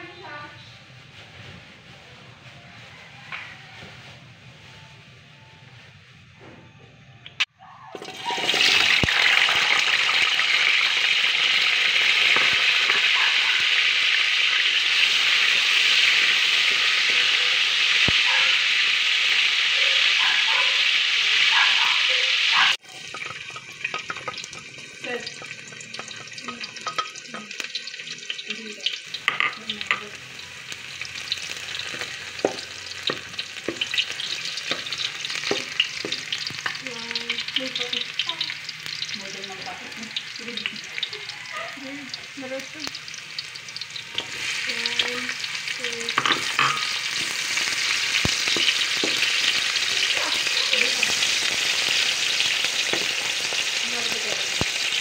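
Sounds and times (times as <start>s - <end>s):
potatoes sizzling in hot oil: 0.0s - 0.6s, 8.0s - 55.0s
garlic sizzling: 0.0s - 5.1s, 7.3s - 55.0s
wooden spatula scraping wok: 44.1s - 52.2s.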